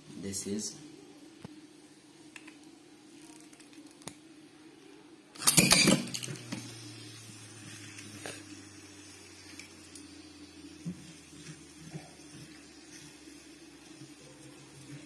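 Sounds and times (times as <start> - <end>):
spinning top clattering: 5.4 - 6.8
spinning top whirring: 5.4 - 15.0.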